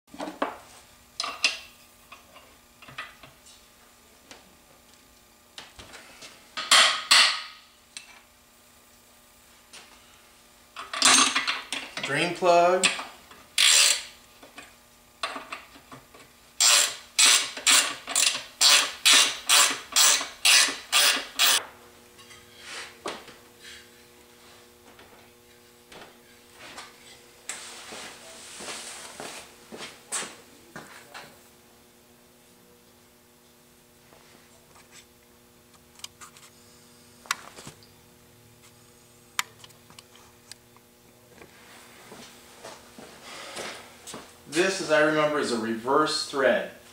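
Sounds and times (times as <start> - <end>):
faint steady hum: 0.2 - 46.9
ratchet wrench ratcheting: 13.6 - 14.1, 16.6 - 21.6.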